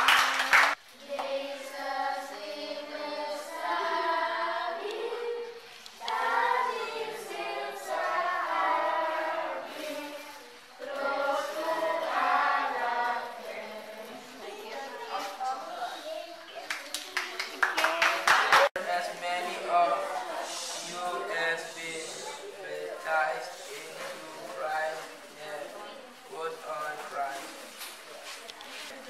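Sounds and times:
hand claps: 0.0 - 1.3
girls singing together: 0.0 - 15.1.

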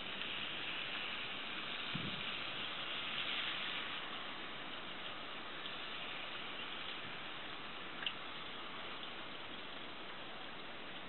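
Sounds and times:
rushing wind: 1.6 - 4.6.

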